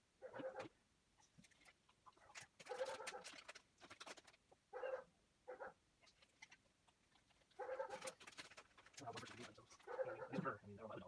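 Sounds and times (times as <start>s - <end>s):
plastic packet crinkling: 1.6s - 4.4s, 7.2s - 9.8s.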